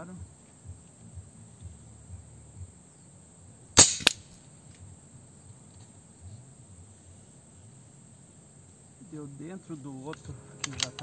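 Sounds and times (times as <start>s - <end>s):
insect hum: 0.0s - 11.0s
air rifle shot crack: 3.8s - 4.4s.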